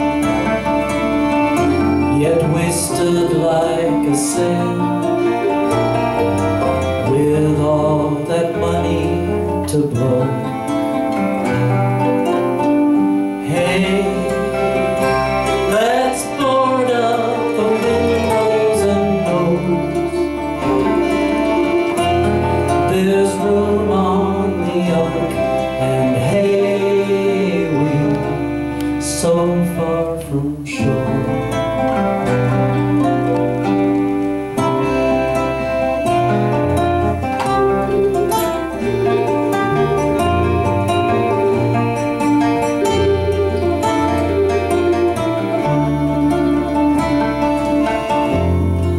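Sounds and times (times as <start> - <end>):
acoustic band playing: 0.0 - 48.9
bass notes: 0.0 - 48.9
guitar: 0.0 - 48.9
mandolin: 0.0 - 48.9.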